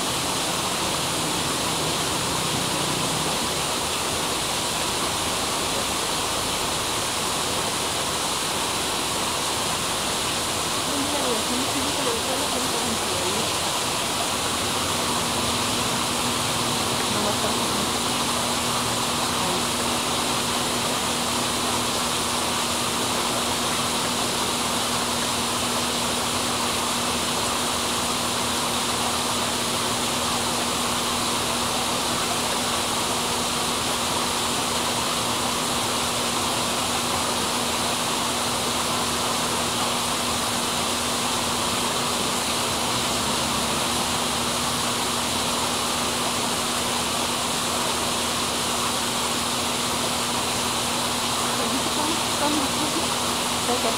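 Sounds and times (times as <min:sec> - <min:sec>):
low constant hum: 0:00.0 - 0:53.9
steady hiss: 0:00.0 - 0:53.9.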